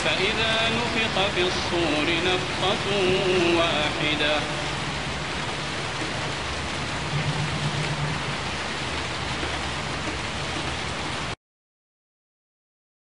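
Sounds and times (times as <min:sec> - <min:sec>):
steady rain hiss: 0:00.0 - 0:11.4.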